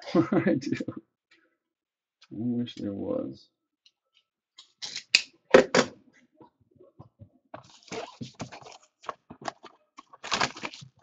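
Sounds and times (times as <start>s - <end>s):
cardboard box rustling: 7.6s - 11.0s.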